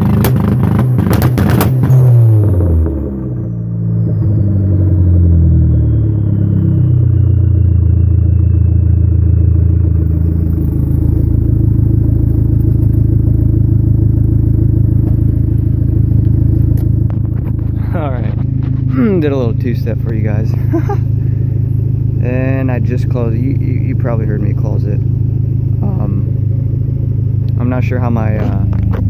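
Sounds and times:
car engine idling loudly: 0.0 - 29.0
faint turbo whistle: 1.9 - 17.5.

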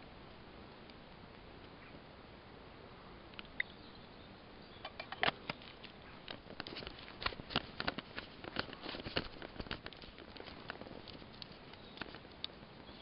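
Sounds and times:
plants crackling and rustling: 2.9 - 13.0.

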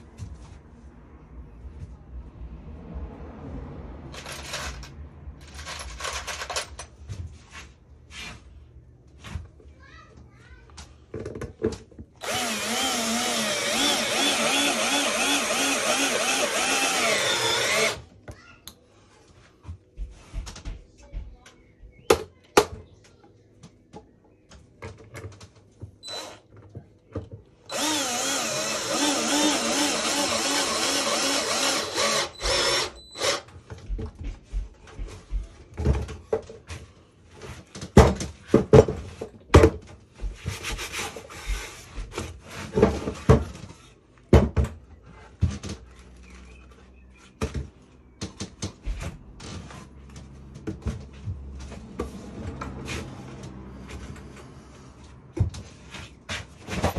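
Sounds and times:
cordless drill driving screw: 12.2 - 18.0, 26.0 - 26.4, 27.7 - 33.5
sharp knocks and wooden clatter: 37.7 - 40.9, 42.0 - 46.2.

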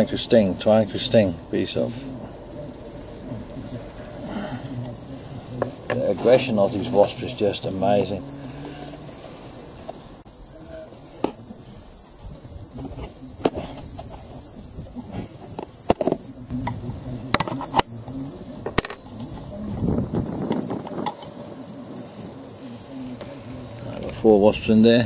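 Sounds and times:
crickets trilling: 0.0 - 25.0.

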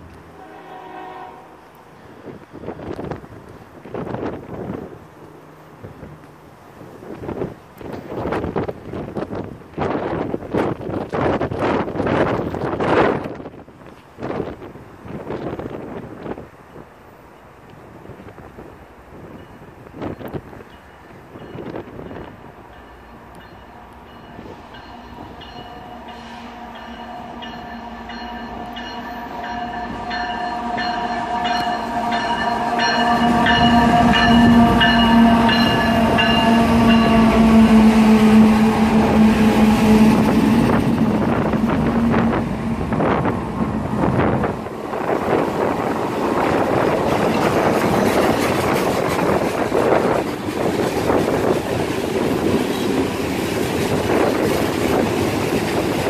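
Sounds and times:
freight train rumble: 0.0 - 56.0
train horn: 0.2 - 2.2, 23.4 - 44.5.

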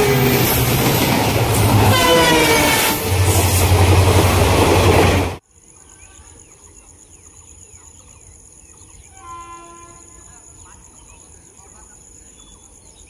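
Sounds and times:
passenger train passing: 0.0 - 5.4
high insect drone: 5.4 - 13.0.

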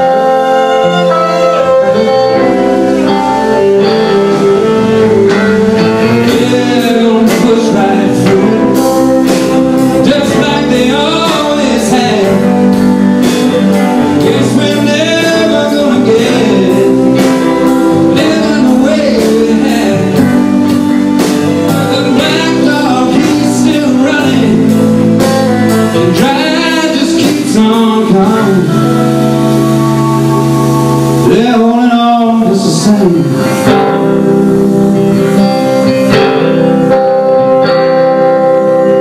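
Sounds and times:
keyboard chords: 0.0 - 39.0
strummed guitar: 0.0 - 39.0
man singing: 3.6 - 34.1.

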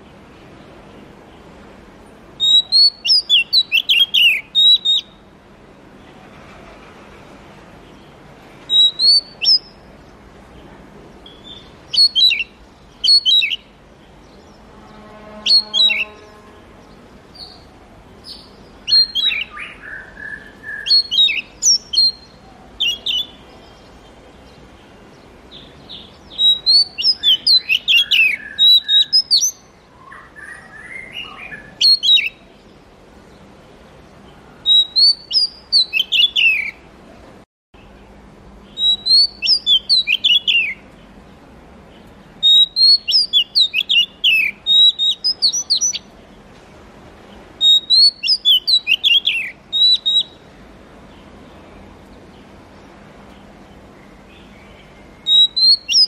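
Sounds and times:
bird singing whistled notes: 2.4 - 5.3, 8.7 - 9.9, 11.2 - 23.9, 25.5 - 32.8, 34.6 - 36.8, 38.7 - 40.9, 42.4 - 46.1, 47.6 - 50.5, 54.3 - 56.0.

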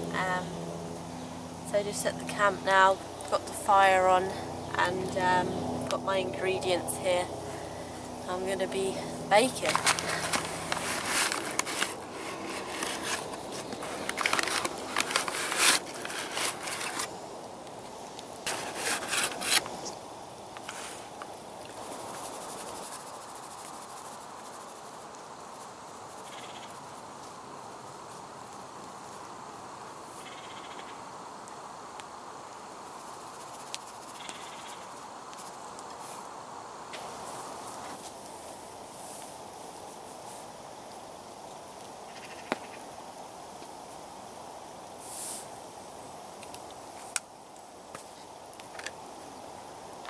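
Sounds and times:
steady soft hiss: 0.0 - 50.0
paper flour bag rustling: 8.9 - 17.2, 18.5 - 19.9.

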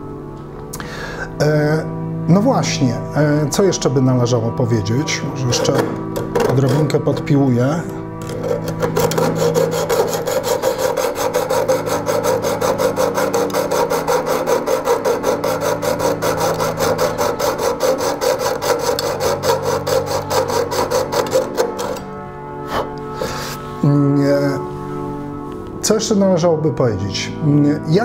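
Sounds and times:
hacksaw cutting metal: 5.4 - 7.0, 8.2 - 22.2.

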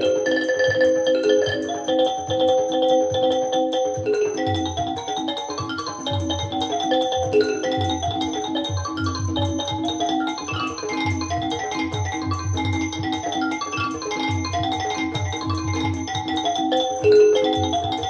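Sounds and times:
bright mallet percussion notes: 0.0 - 18.0
repeating bass pattern: 4.0 - 18.0.

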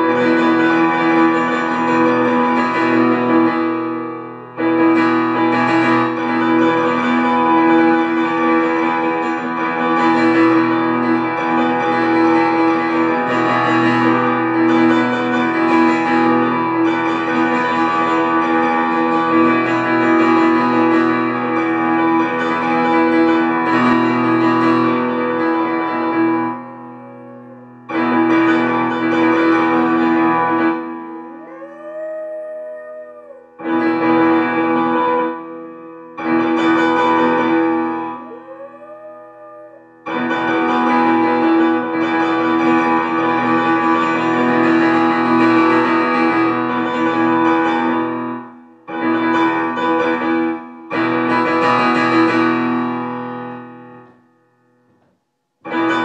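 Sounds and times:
small dog howling: 27.0 - 27.8, 31.2 - 33.7, 38.2 - 40.0.

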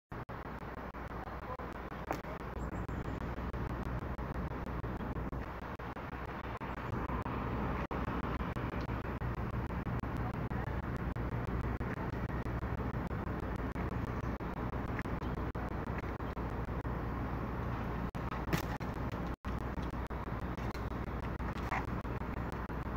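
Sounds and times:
road traffic rumble: 0.1 - 22.9.

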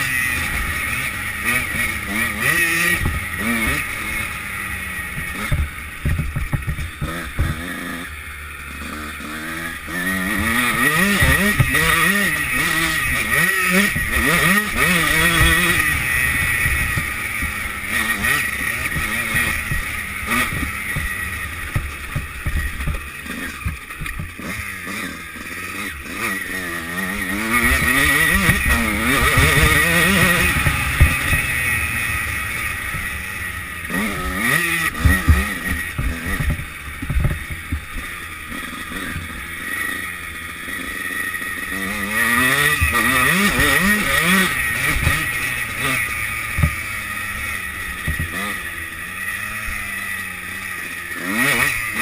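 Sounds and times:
motocross bike engine revving: 0.0 - 52.0
low thumps from bumpy track: 5.1 - 7.8, 12.6 - 24.5, 33.9 - 38.2.

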